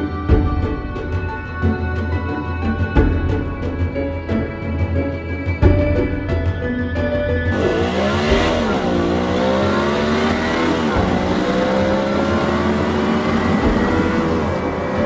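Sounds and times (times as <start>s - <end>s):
car engine accelerating: 7.5s - 15.0s.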